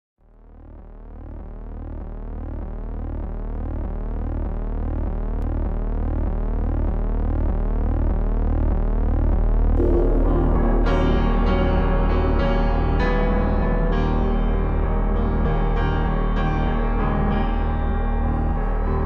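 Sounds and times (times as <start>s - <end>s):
low synthesized drone: 0.3s - 19.0s
sweeping electronic tones: 9.8s - 12.4s
music with piano: 9.8s - 19.0s.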